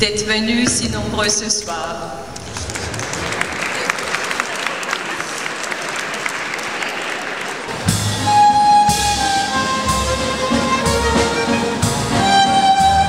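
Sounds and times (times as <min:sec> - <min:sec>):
audience applauding: 0:02.4 - 0:08.8
orchestral music with violins: 0:07.8 - 0:13.0.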